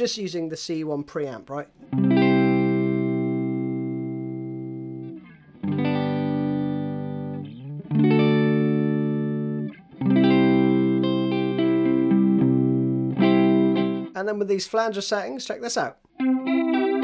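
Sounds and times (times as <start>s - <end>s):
clean electric guitar chords: 1.8s - 14.2s, 16.2s - 17.0s.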